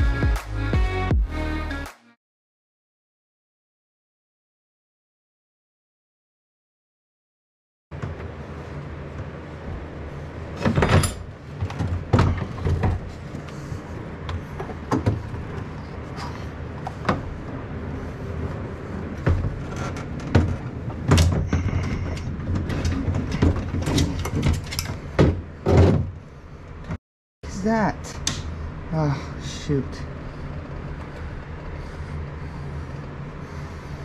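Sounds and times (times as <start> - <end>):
steady low hum: 7.9 - 34.0
metal and plastic clanks and scrapes: 19.2 - 26.2.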